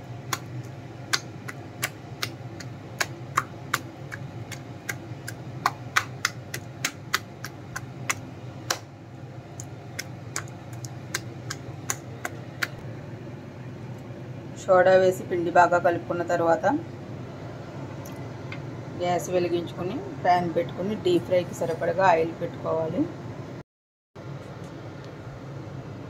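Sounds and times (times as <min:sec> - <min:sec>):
low steady hum: 0:00.0 - 0:23.6
hand slapping wet batter: 0:00.2 - 0:08.9, 0:09.6 - 0:12.8.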